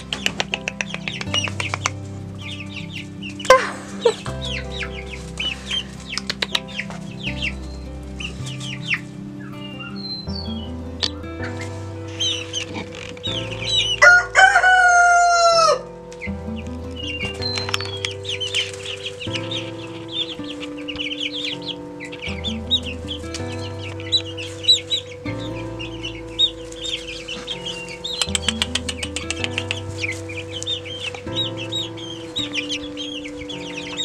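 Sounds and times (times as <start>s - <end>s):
background music with bass line: 0.0s - 34.0s
young chickens peeping and clucking: 0.0s - 34.0s
rooster crowing: 13.9s - 15.9s.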